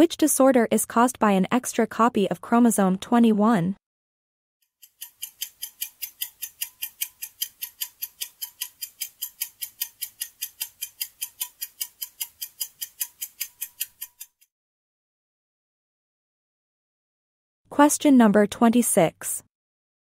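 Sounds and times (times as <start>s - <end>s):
quick high clock ticks: 4.8s - 14.5s.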